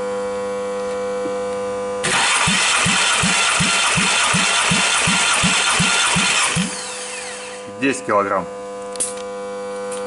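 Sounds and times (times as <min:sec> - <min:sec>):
engine starter cranking: 0:02.0 - 0:07.7.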